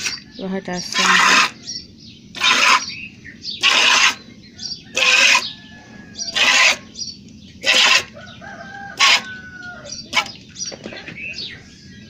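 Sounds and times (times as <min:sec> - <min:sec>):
birds calling faintly: 0:00.0 - 0:12.0.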